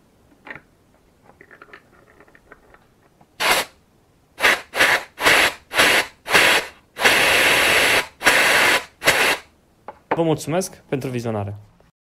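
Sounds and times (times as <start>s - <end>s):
compressed air hissing bursts: 3.4s - 3.8s, 4.4s - 9.5s.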